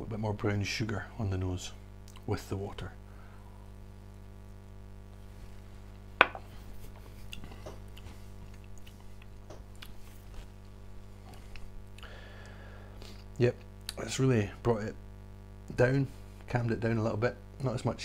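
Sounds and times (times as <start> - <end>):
low electrical hum: 0.0 - 18.0
glass set down on wood: 6.2 - 6.5
wet mouth and lip sounds: 7.2 - 10.1.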